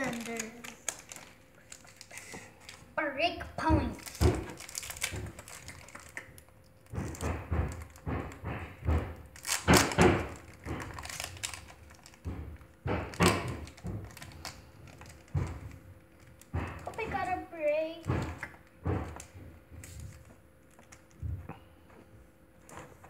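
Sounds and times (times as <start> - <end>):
foil pack crinkling: 0.0 - 3.0, 3.9 - 8.6, 9.2 - 17.1, 18.3 - 21.2
knocks and thumps: 3.6 - 5.8, 6.8 - 20.3.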